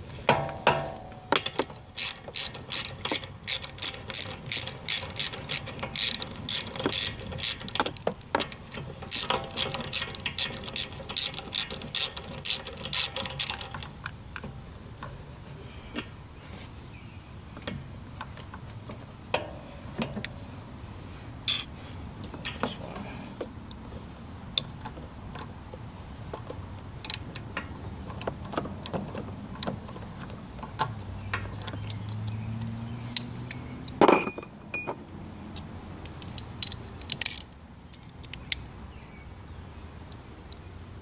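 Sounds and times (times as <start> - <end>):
socket ratchet clicking: 1.3 - 14.4, 35.5 - 38.7.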